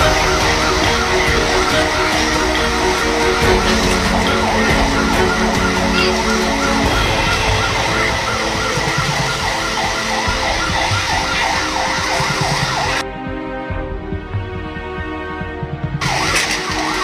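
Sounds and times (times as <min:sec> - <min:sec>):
siren wailing in fast yelp: 0:00.0 - 0:13.0
steady background rush: 0:00.0 - 0:17.0.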